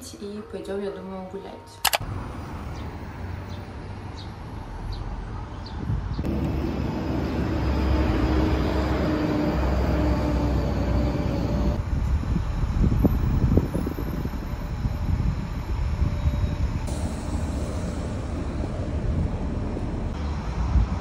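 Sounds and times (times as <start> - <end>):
traffic rumble: 1.9 - 21.0
faint engine hum: 6.3 - 14.0.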